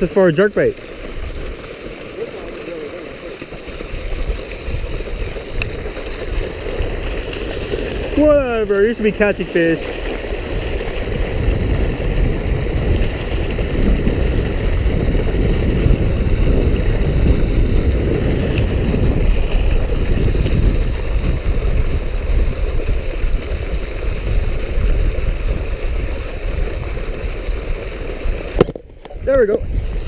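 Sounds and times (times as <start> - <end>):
water gushing into canal: 0.0 - 30.0
wind buffeting microphone: 3.7 - 30.0.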